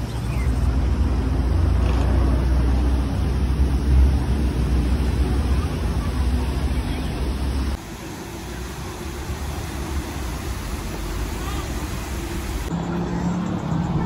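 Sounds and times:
outdoor hiss: 2.4s - 12.7s.

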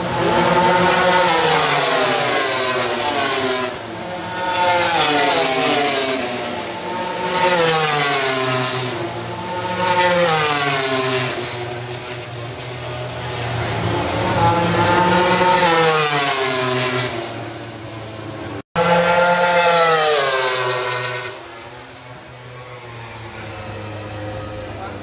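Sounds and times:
racing motorcycles passing: 0.0s - 25.0s.

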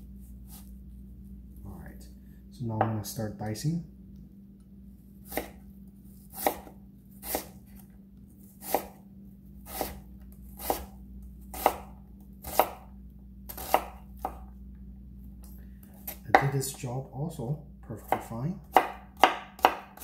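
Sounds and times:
knife chopping onion on board: 5.3s - 5.6s, 6.2s - 7.6s, 8.6s - 9.0s, 9.6s - 10.0s, 10.6s - 10.9s, 11.5s - 12.9s, 13.5s - 14.4s, 16.0s - 16.8s, 18.0s - 20.0s.

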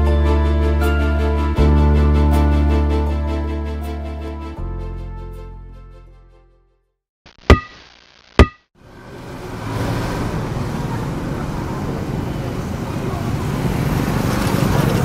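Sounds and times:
sharp knocks with ringing tone: 8.4s - 8.6s
street traffic: 8.8s - 15.0s.

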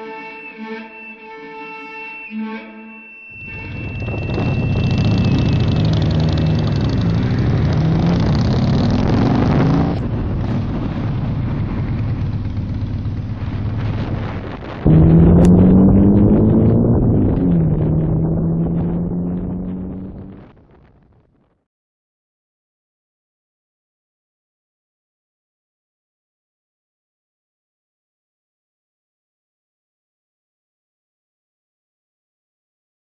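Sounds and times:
motorcycle engine accelerating: 3.4s - 20.7s
wind and road noise: 3.4s - 21.3s.

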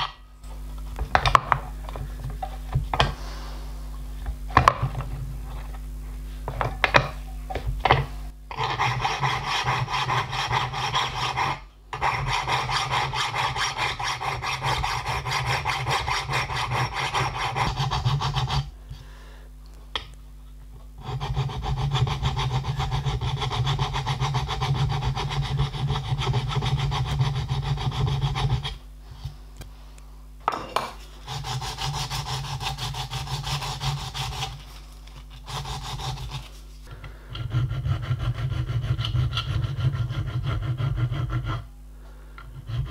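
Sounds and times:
hand file rasping on steel: 8.5s - 18.7s, 21.0s - 28.8s, 31.0s - 36.7s, 37.3s - 41.7s, 42.4s - 42.9s.

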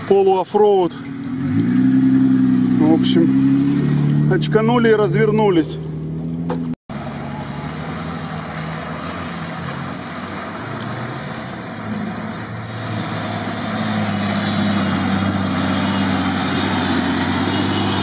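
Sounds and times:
water and mud washing: 0.0s - 5.8s, 6.9s - 18.0s
engine running under load: 5.7s - 18.0s.

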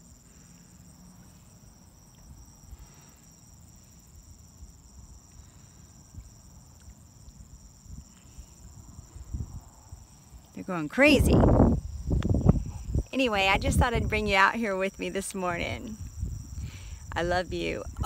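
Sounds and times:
crickets trilling: 0.0s - 18.0s
gusty wind rumble on microphone: 7.4s - 10.4s, 11.0s - 14.6s, 15.3s - 18.0s.

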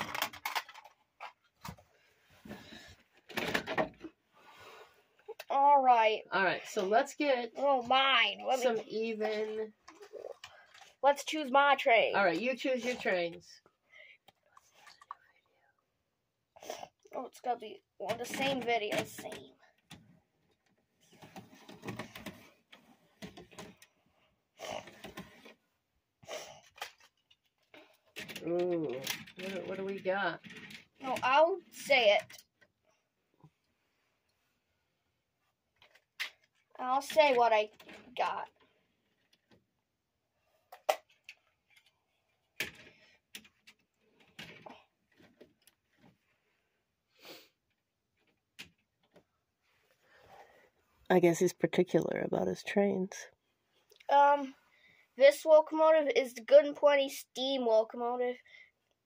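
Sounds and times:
plastic model clicks and rattles: 0.0s - 1.4s, 26.6s - 32.7s.

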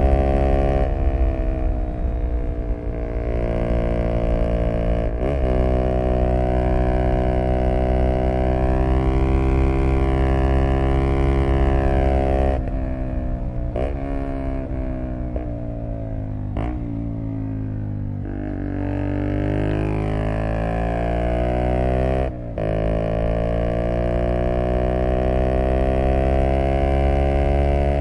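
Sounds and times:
scooter engine at high revs: 18.2s - 28.0s.

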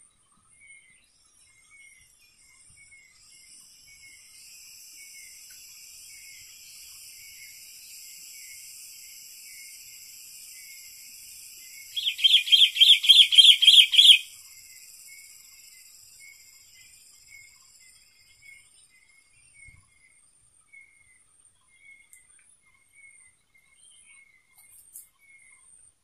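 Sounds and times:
high-pitched insect drone: 3.2s - 18.5s
bird calling in quick notes: 12.0s - 14.3s.

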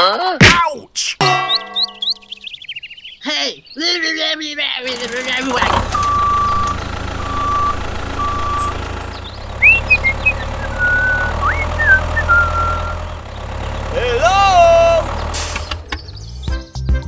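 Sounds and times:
vehicle engine running: 4.8s - 16.5s
reversing alarm beeps: 5.9s - 8.8s.

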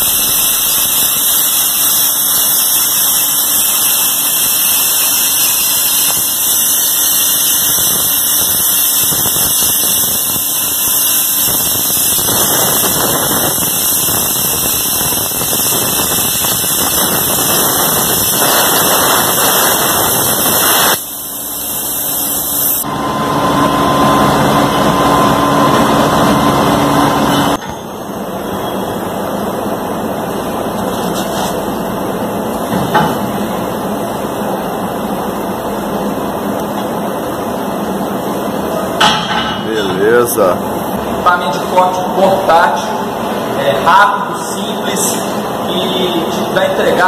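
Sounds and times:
plasma torch cutting steel: 0.0s - 22.9s
loud noise with steady whine: 0.0s - 47.0s.

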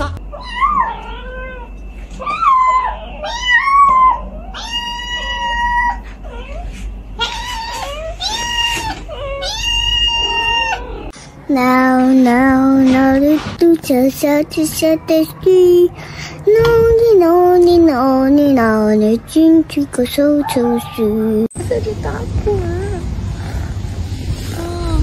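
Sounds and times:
cat meowing: 0.0s - 6.6s, 7.2s - 11.1s.

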